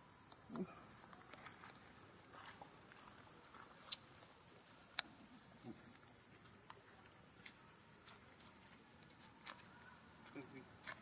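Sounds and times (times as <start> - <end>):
insects chorus: 0.0 - 11.0
faint ticks: 4.9 - 5.1.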